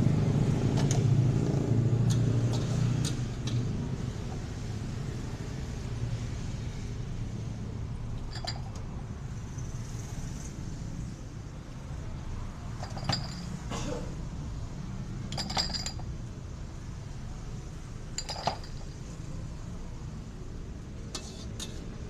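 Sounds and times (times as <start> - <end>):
dishes and utensils clinking: 12.8 - 13.6, 15.3 - 16.1, 18.2 - 19.0.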